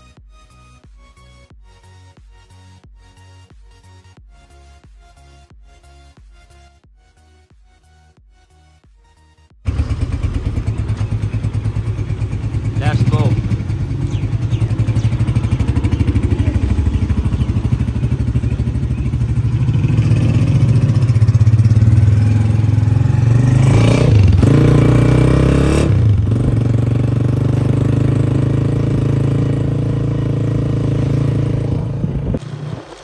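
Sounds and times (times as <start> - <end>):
motorcycle engine revving: 9.6 - 33.0.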